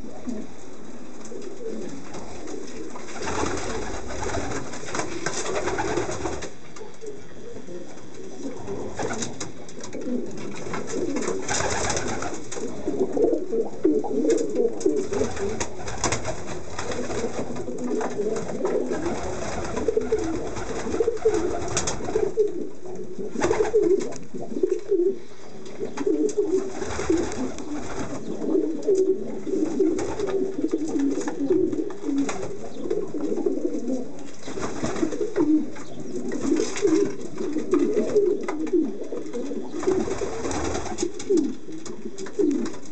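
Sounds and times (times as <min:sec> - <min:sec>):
pigeons cooing: 0:00.0 - 0:42.9.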